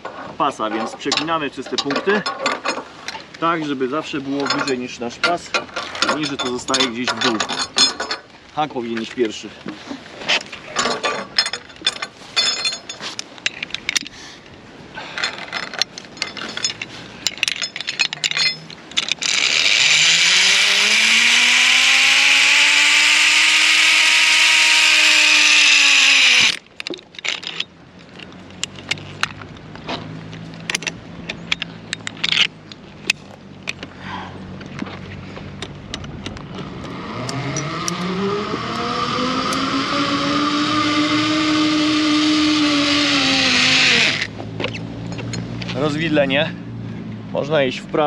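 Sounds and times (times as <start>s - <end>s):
metal clicks and rattles: 0.0s - 3.4s, 4.3s - 8.3s, 10.3s - 14.2s, 15.2s - 19.9s, 26.4s - 33.9s, 35.6s - 36.6s
zipline pulleys hissing and whining: 19.2s - 26.6s, 36.7s - 44.3s.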